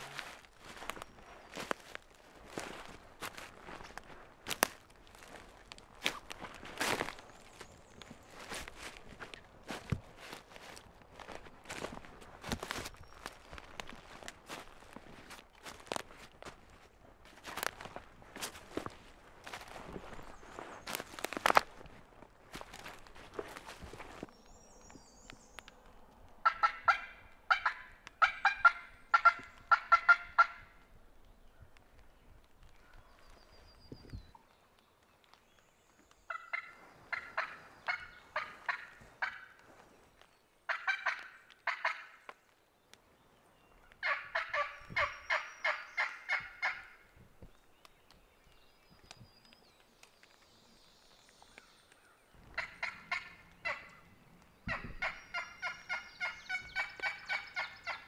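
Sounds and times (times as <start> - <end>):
wild turkey yelping: 26.4 - 30.6, 36.3 - 39.6, 40.7 - 42.2, 44.0 - 47.0, 52.5 - 54.1, 54.7 - 58.0.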